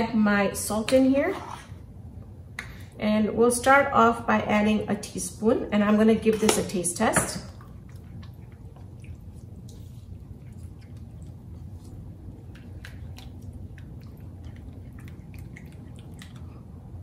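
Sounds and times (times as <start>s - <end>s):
spatula stirring wet marinade: 7.6s - 16.4s.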